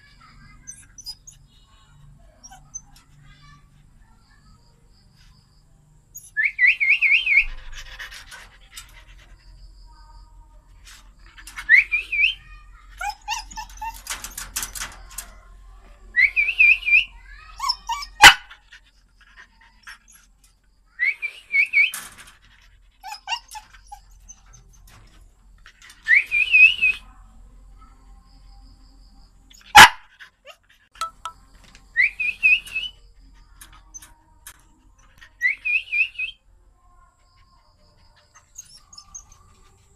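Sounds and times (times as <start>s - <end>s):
dog whining and yelping: 13.0s - 15.4s, 16.2s - 20.4s, 22.5s - 24.8s, 38.2s - 39.7s.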